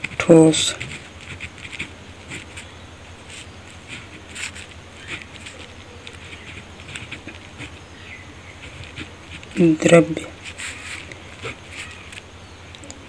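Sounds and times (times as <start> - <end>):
ballpoint pen scratching on paper: 0.0 - 12.2
steady low hum: 0.0 - 13.0.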